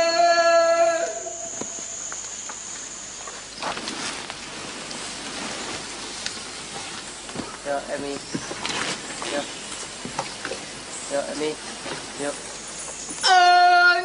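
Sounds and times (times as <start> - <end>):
high-pitched insect drone: 0.0 - 3.7
rustling background: 1.5 - 13.3.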